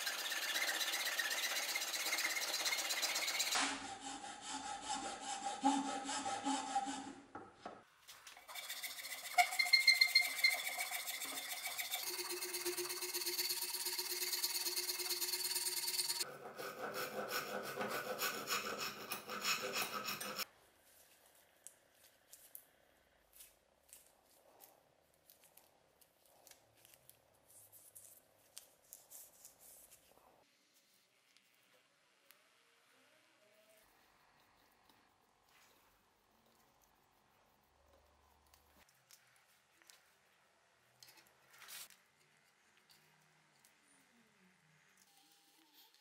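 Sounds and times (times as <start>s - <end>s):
hand file rasping on metal: 0.0s - 7.2s, 8.4s - 20.5s.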